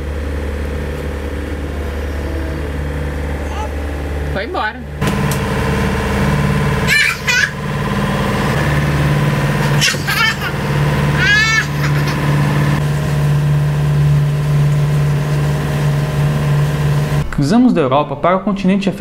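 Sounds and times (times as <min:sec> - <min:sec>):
boat engine droning: 0:00.0 - 0:17.3.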